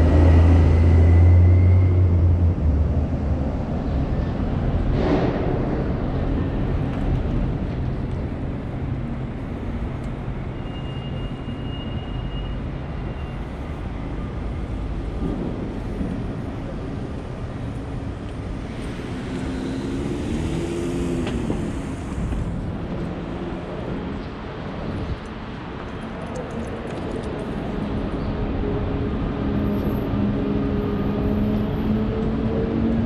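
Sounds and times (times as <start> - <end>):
traffic rumble: 0.0 - 33.0.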